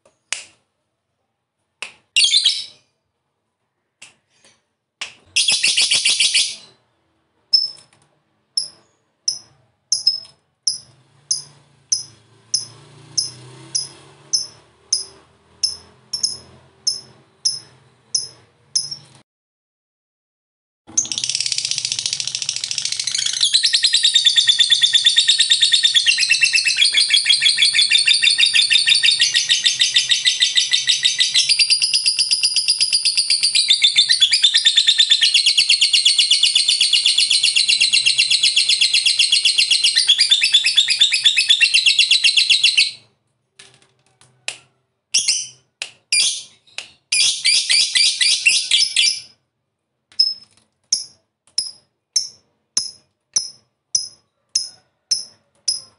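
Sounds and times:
lovebird chattering: 8.6s - 19.1s.

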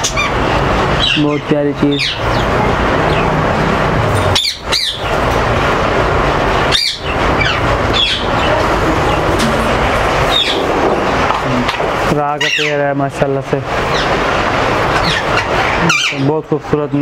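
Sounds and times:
parrots calling shrilly: 0.0s - 5.6s, 6.4s - 11.3s, 12.4s - 12.8s, 13.8s - 16.3s
steady background noise: 0.0s - 17.0s.

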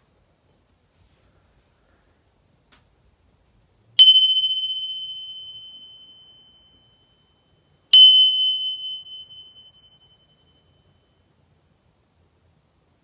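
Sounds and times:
small brass cymbals ringing: 4.0s - 11.1s.

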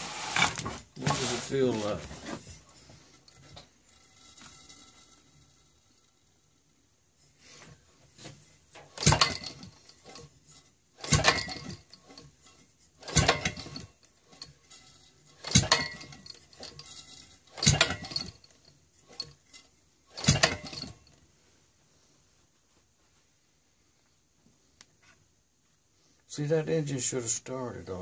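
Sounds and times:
engine cranked by hand: 0.0s - 6.4s, 8.7s - 21.2s.

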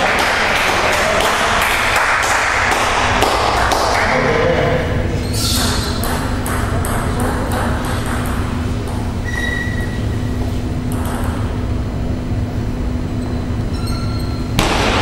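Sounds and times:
steady low hum: 0.0s - 15.0s
brief high squeak: 5.2s - 5.9s, 9.2s - 10.2s, 13.2s - 14.5s.

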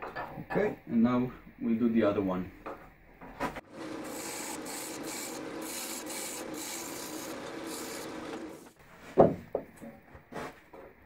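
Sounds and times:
wood lathe running: 3.6s - 8.8s
chisel cutting wood hiss: 3.8s - 8.8s.

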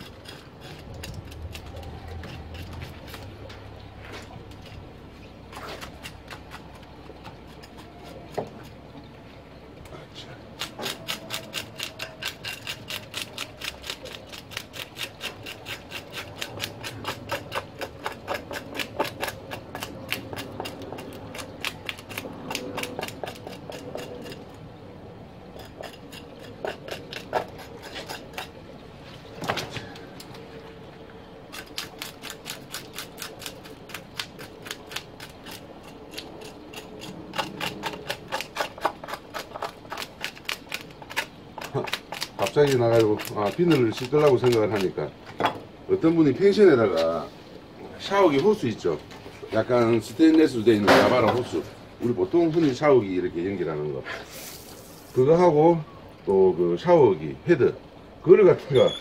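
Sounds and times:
blade scraping fish scales: 0.0s - 4.9s, 10.6s - 24.6s, 25.5s - 28.6s, 31.5s - 44.9s.

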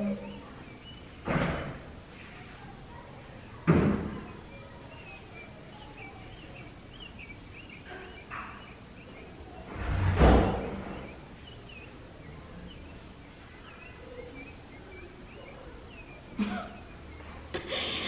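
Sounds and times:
sudden thuds: 3.6s - 4.3s
faint high wavering chirps: 4.2s - 9.7s.

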